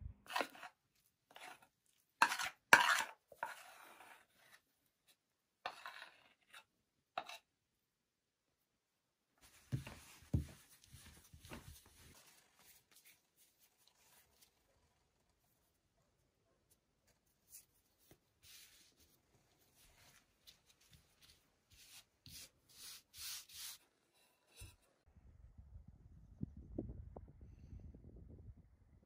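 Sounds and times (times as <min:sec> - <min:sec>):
metal spoon scraping enamel bowl: 0:00.3 - 0:04.2
dough thudding and rubbing in flour: 0:09.5 - 0:13.2.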